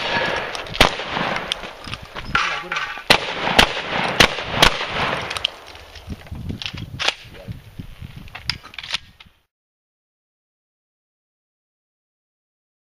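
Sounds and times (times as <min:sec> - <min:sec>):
shotgun shots: 0:00.0 - 0:01.8, 0:02.4 - 0:05.6.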